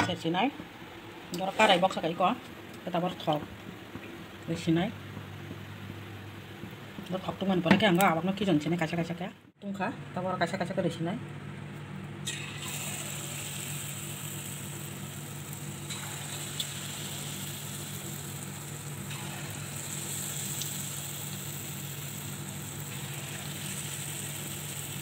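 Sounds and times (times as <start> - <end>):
dough sizzling in hot oil: 12.2 - 25.0.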